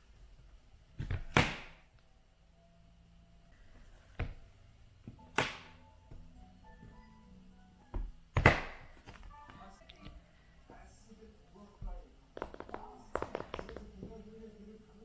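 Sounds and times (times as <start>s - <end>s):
tablet cover slapping shut: 5.3s - 5.7s, 8.4s - 9.2s.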